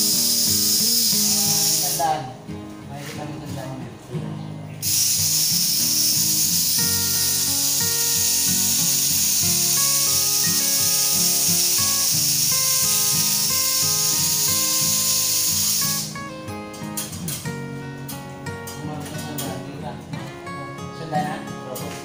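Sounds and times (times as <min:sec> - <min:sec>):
pressurised gas hissing: 0:00.0 - 0:02.3, 0:04.8 - 0:16.2
guitar music: 0:00.0 - 0:22.0.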